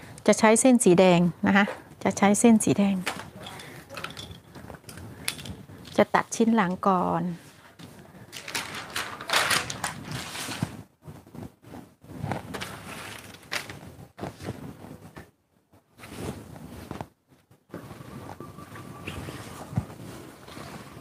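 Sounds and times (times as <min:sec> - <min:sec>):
paper rustling: 0:07.8 - 0:10.9, 0:12.3 - 0:14.8.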